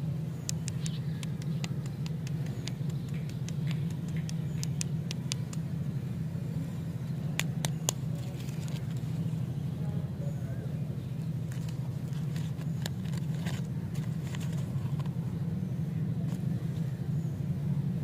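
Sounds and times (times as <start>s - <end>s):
low hum: 0.0s - 18.0s
sharp clicks: 0.4s - 5.7s, 7.3s - 8.1s
plastic wrappers crinkling: 11.5s - 15.1s.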